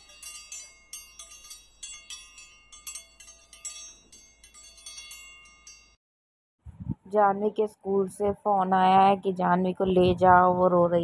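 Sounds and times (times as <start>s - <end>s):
metal wind chimes tinkling: 0.0s - 6.0s.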